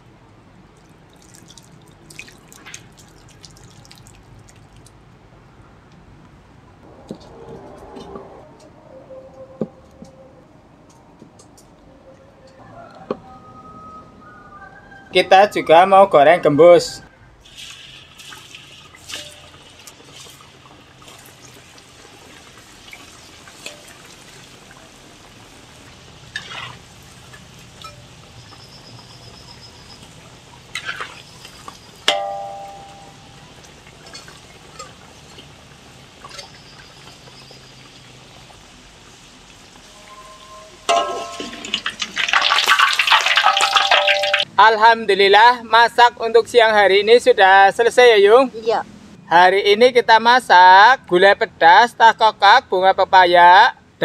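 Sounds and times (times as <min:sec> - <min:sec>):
oil sizzling in wok: 0:17.4 - 0:44.5
metal spatula knocking wok: 0:32.1 - 0:33.4, 0:40.9 - 0:41.9.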